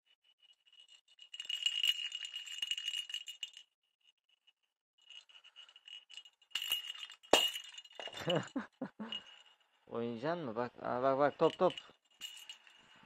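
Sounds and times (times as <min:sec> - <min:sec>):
cat toy bell jingling: 0:00.6 - 0:03.6, 0:05.1 - 0:09.7, 0:11.3 - 0:13.0.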